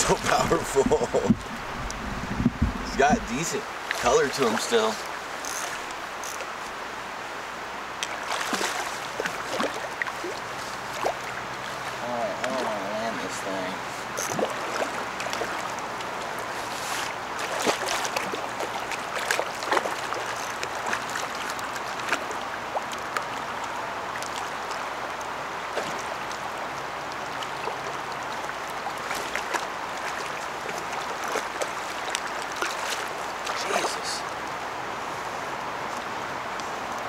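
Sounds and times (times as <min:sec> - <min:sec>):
flowing river water: 0:00.0 - 0:37.0
fish splashing at surface: 0:08.2 - 0:10.4.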